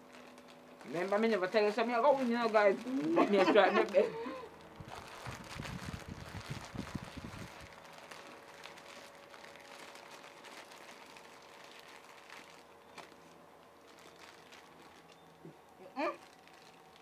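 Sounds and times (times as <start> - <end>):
light crackles: 0.0 - 15.5
plastic snack bags crinkling: 0.0 - 17.0.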